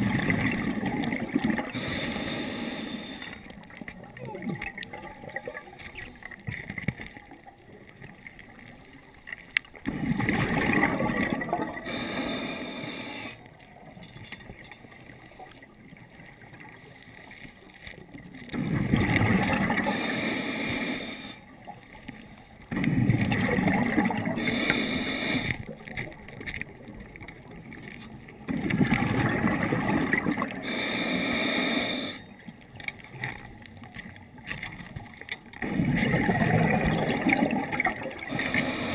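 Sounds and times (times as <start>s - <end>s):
diver breathing through regulator: 1.6s - 3.5s, 11.7s - 13.5s, 19.7s - 21.5s, 24.2s - 25.7s, 30.2s - 32.4s, 38.2s - 38.9s.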